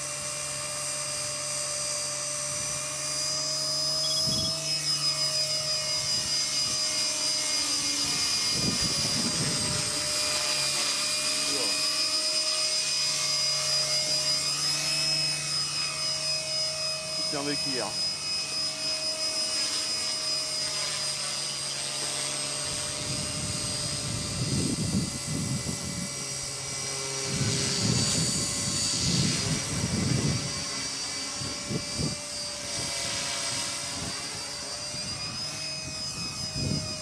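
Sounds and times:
rc helicopter motor whine: 0.0 - 37.0.

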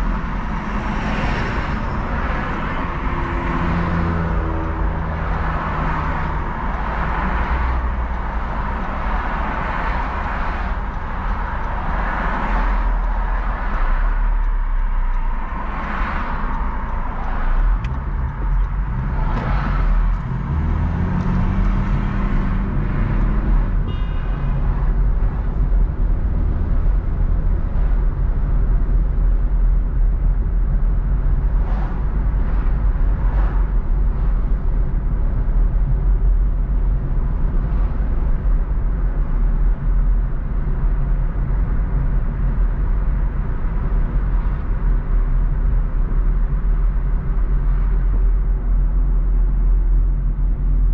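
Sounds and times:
traffic swishing past: 0.0 - 28.6, 31.0 - 38.5
road and engine rumble: 0.0 - 50.9
engine accelerating: 17.5 - 23.8.

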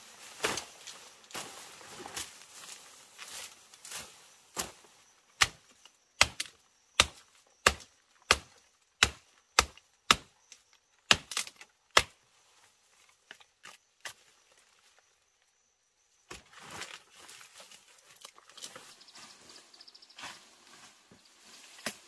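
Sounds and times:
chopping into wood: 5.4 - 10.3, 11.1 - 12.2.

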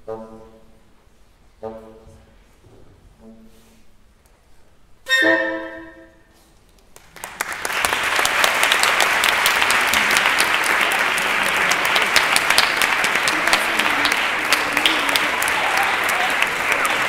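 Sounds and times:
audience applause: 6.9 - 17.0.

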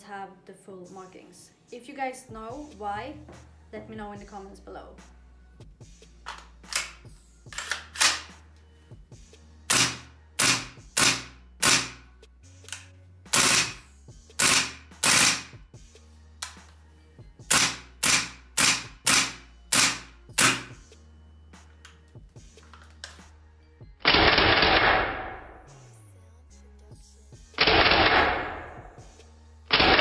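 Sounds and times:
airsoft rifle firing single shots: 27.6 - 28.8.

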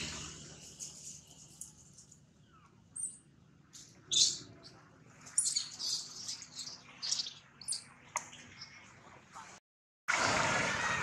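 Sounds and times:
baby monkey squealing: 4.1 - 4.5.

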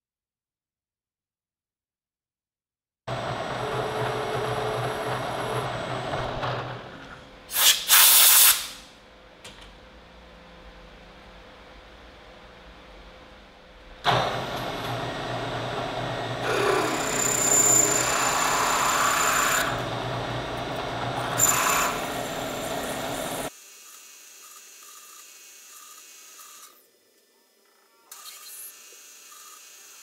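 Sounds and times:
milling machine cutting metal: 3.1 - 6.9, 14.1 - 23.5
spindle motor hum: 14.0 - 23.5.

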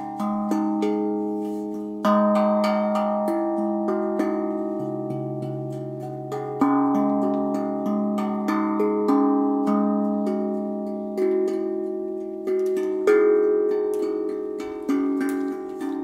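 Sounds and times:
tuned percussion slow melody: 0.0 - 16.0.

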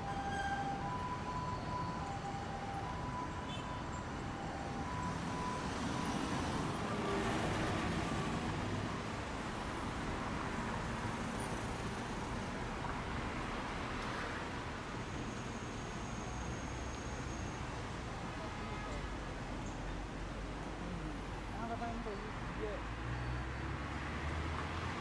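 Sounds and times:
faint two-note siren: 0.0 - 8.8
road traffic rush: 0.0 - 25.0.

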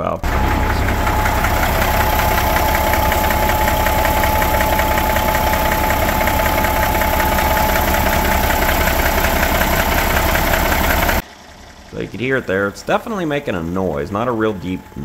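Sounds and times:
high whine: 0.0 - 11.2
diesel engine idling: 0.0 - 15.0
engine knocking: 0.2 - 12.0.

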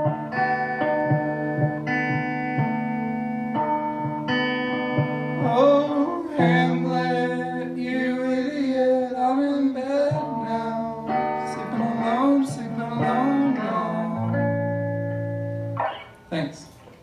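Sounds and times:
electric guitar chords: 0.0 - 17.0
man singing: 5.4 - 14.4.

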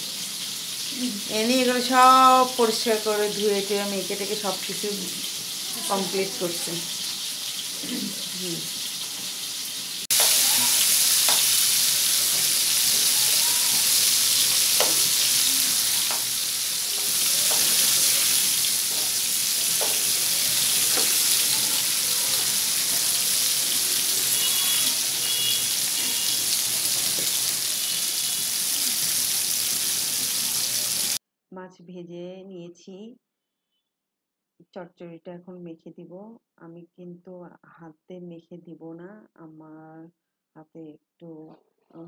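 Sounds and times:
fish sizzling in hot oil: 0.0 - 31.2
oil popping and crackling: 10.0 - 29.9.

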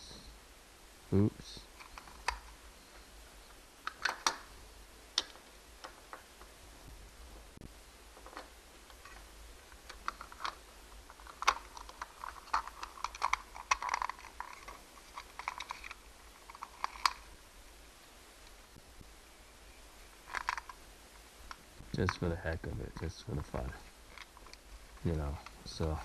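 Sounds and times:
plastic toy clicking and rattling: 1.8 - 2.6, 3.8 - 4.5, 8.2 - 17.3, 20.2 - 20.8, 24.1 - 26.0.

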